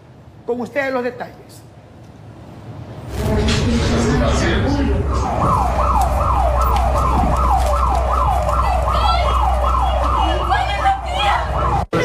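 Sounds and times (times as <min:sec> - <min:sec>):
emergency siren yelping: 0:04.4 - 0:12.0.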